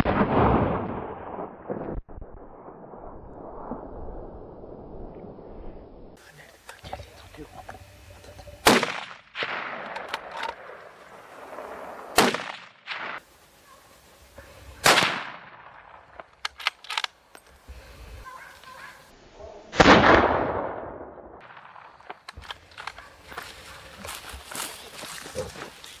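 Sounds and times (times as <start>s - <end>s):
gunshots with echo: 8.6s - 10.7s, 11.5s - 13.2s.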